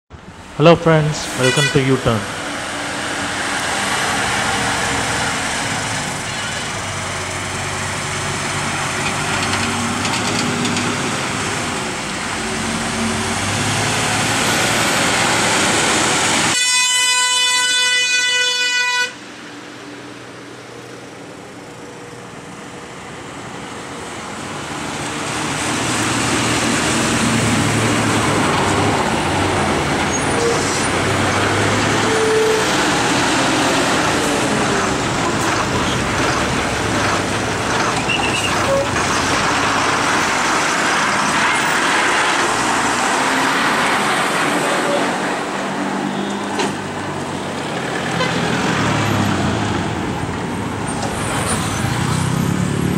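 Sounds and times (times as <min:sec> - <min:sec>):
heavy lorry engines labouring: 0:00.1 - 0:18.4, 0:19.2 - 0:52.9
vehicle horn blast: 0:01.2 - 0:02.2, 0:16.5 - 0:19.2.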